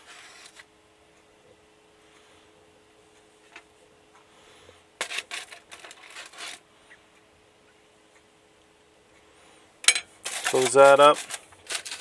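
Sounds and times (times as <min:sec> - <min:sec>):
faint steady hum: 0:00.0 - 0:12.0
plastic spoon scraping cookware: 0:05.0 - 0:06.6, 0:10.2 - 0:12.0.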